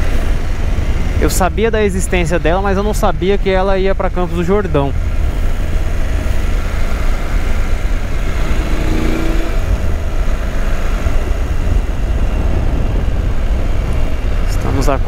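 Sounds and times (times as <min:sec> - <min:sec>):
motorcycle engine running: 0:04.9 - 0:14.2
wind rush over microphone: 0:04.9 - 0:15.0.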